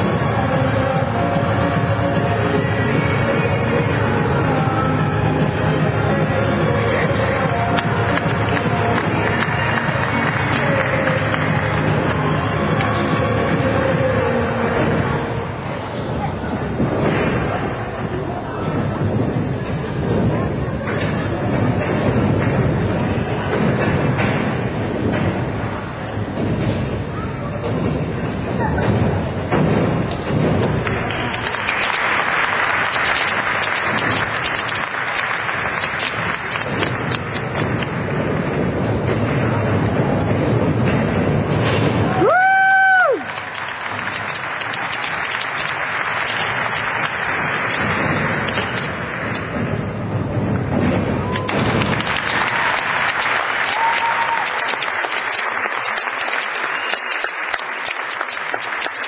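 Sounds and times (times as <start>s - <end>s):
audience applauding: 6.9s - 14.2s, 30.8s - 37.9s, 42.2s - 49.5s, 51.3s - 59.0s
faint whoop: 42.1s - 43.4s.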